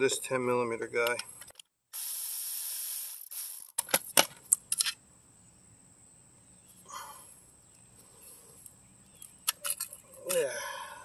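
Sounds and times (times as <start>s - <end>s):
faint rustle: 6.6s - 10.5s
metal clicks and knocks on concrete: 9.2s - 10.4s.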